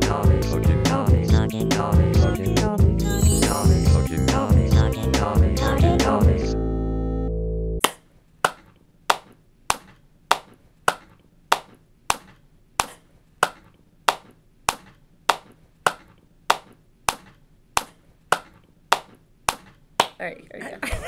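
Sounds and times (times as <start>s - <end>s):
person clapping hands: 7.8s - 20.2s.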